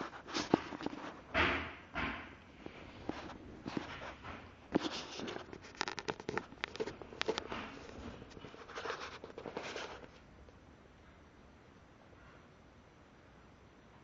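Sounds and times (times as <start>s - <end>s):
soft rustling: 2.6s - 10.3s
small clicks and crackles: 4.7s - 10.6s.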